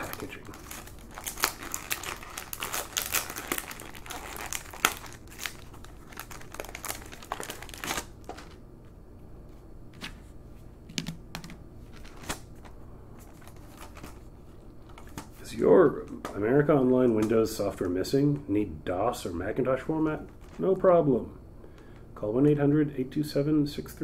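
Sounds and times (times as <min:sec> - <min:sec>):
paper tearing and crinkling: 0:00.0 - 0:08.6.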